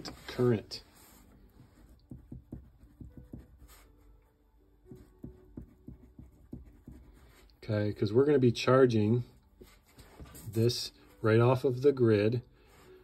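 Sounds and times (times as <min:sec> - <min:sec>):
pencil scratching on paper: 0:00.0 - 0:04.2, 0:04.9 - 0:07.5.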